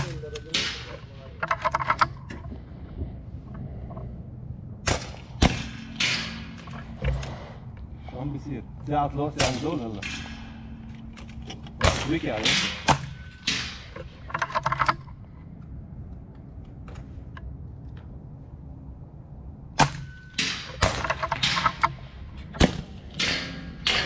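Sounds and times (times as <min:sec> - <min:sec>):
air rifles firing: 0:04.8 - 0:07.4, 0:11.7 - 0:14.3.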